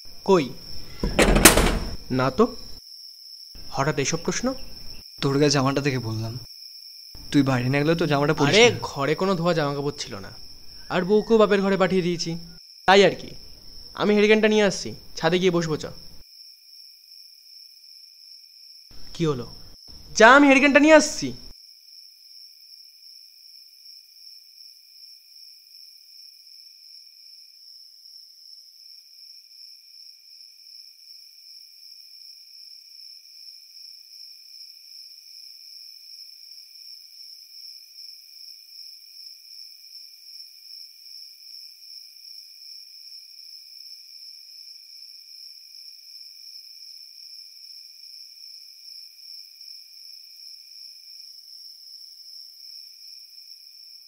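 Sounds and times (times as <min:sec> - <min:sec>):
high cricket trill: 0:00.0 - 0:22.9
lower cricket trill: 0:00.0 - 0:54.0.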